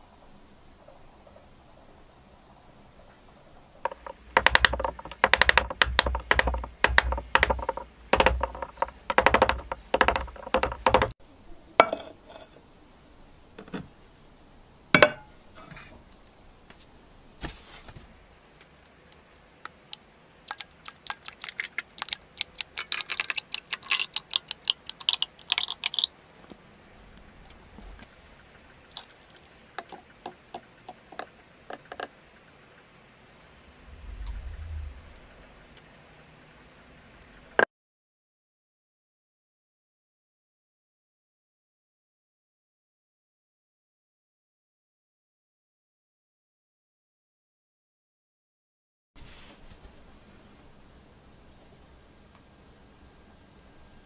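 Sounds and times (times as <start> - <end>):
metal knocking on workbench: 3.9 - 11.1, 11.8 - 12.5, 15.0 - 15.3.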